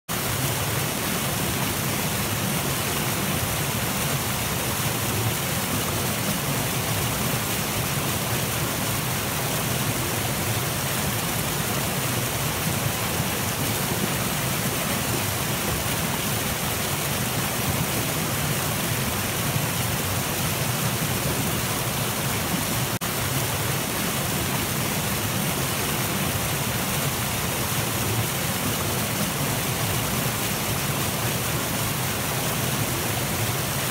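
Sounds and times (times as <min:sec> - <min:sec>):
creek rushing over rocks: 0:00.1 - 0:33.9.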